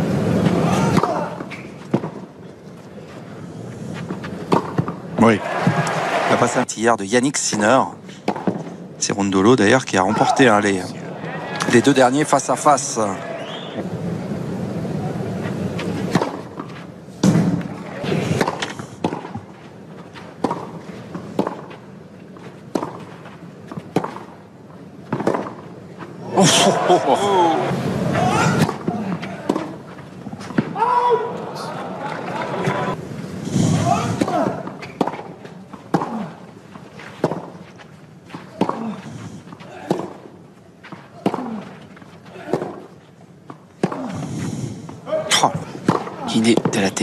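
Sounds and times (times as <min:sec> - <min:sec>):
crowd noise: 0:00.0 - 0:07.0, 0:07.7 - 0:22.6, 0:23.4 - 0:42.9
tennis ball struck by racket: 0:04.4 - 0:05.0, 0:16.0 - 0:19.5, 0:20.4 - 0:21.7, 0:22.7 - 0:23.1, 0:23.7 - 0:24.3, 0:25.1 - 0:25.7, 0:34.0 - 0:36.2, 0:37.2 - 0:37.6, 0:39.8 - 0:40.2, 0:45.5 - 0:46.7
tennis racket striking ball: 0:18.3 - 0:19.4, 0:20.4 - 0:21.7, 0:22.7 - 0:23.1, 0:45.8 - 0:46.8
player grunting: 0:26.2 - 0:29.8.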